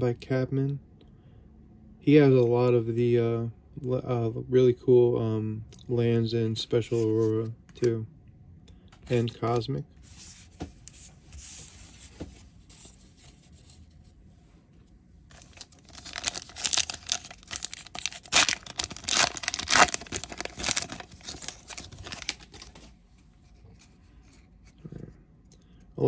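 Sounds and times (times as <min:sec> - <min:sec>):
foil wrapper tearing and crinkling: 0:15.3 - 0:22.8.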